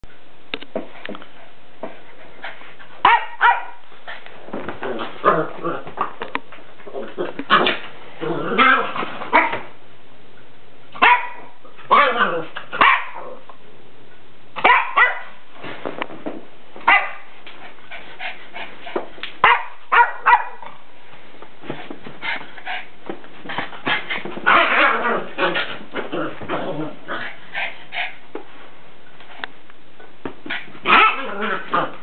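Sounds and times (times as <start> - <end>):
dog barking and yipping: 3.0 - 3.8, 8.6 - 9.6, 11.0 - 13.3, 14.6 - 15.3, 16.9 - 17.3, 19.4 - 20.7, 30.9 - 31.8.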